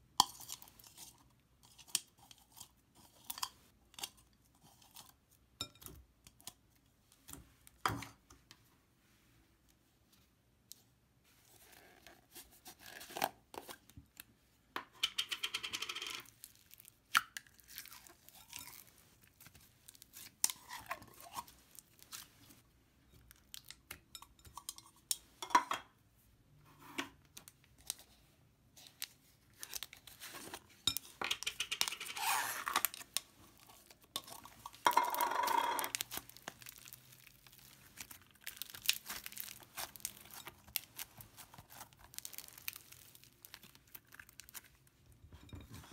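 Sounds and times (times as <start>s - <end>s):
slime crackling and tearing: 35.9s - 44.8s.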